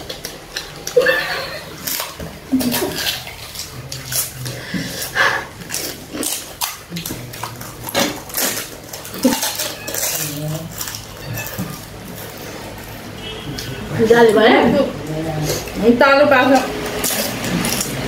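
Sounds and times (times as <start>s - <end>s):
crisp shells crackling: 0.0s - 13.0s.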